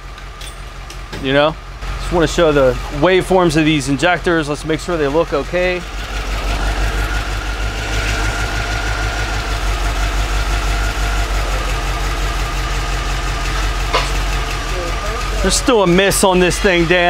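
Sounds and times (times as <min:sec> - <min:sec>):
car engine idling unevenly: 0:00.0 - 0:17.0
steady high whine: 0:05.7 - 0:17.0.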